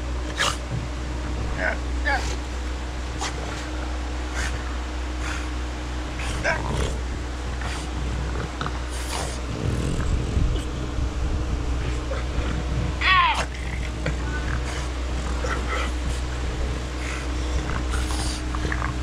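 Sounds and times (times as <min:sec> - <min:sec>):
dog growling: 0:00.0 - 0:19.0
dog whining: 0:01.5 - 0:02.5, 0:06.2 - 0:07.0, 0:11.8 - 0:19.0.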